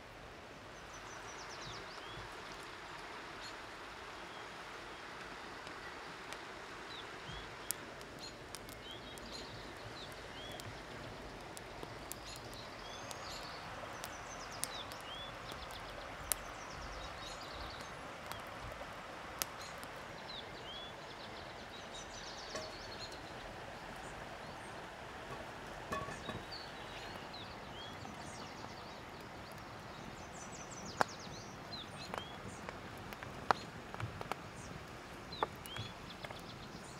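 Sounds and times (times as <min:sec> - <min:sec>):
small birds chirping: 0:00.4 - 0:36.9
wood fire snapping: 0:05.2 - 0:20.8, 0:21.7 - 0:24.1, 0:29.1 - 0:36.6
river water rushing: 0:11.0 - 0:27.9.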